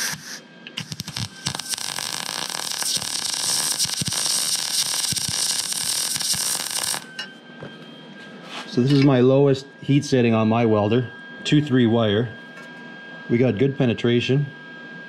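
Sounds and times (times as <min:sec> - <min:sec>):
sputtering pops of welding arc: 0:00.0 - 0:07.2
welding arc crackling: 0:00.0 - 0:07.2.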